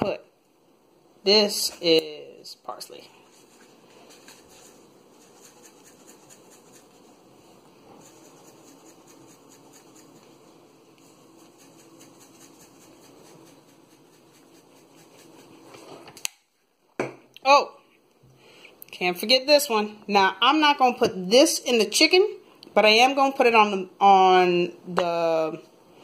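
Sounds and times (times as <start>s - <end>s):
spice jar shaking: 3.3s - 7.1s, 8.0s - 10.4s, 11.0s - 15.7s.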